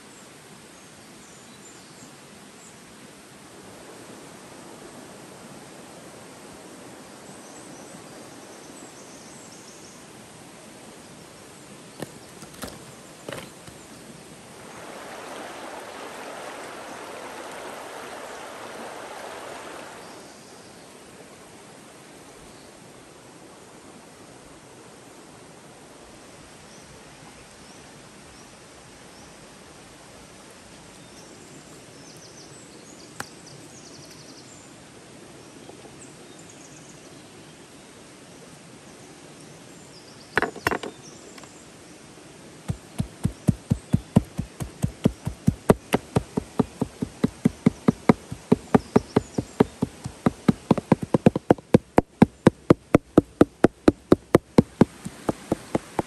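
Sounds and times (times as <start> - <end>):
cleaver chopping on wooden board: 12.0 - 13.5, 42.7 - 56.0.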